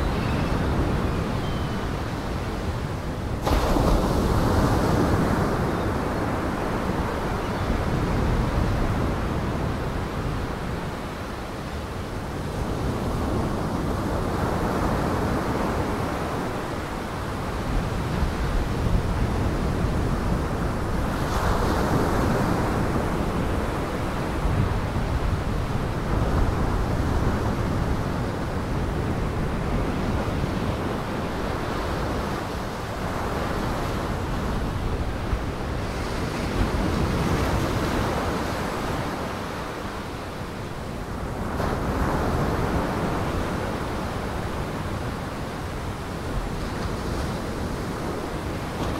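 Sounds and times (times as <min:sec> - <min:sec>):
waves breaking: 0:03.4 - 0:06.4.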